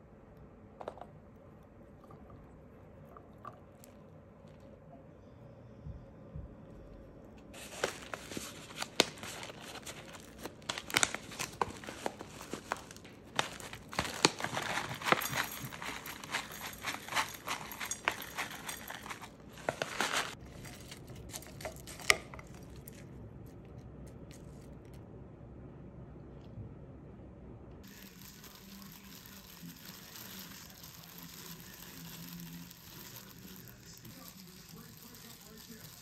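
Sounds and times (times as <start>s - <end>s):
paper bag crinkling: 7.5s - 23.0s, 27.8s - 36.0s
granola pattering into a bowl: 7.6s - 23.1s, 27.8s - 36.0s.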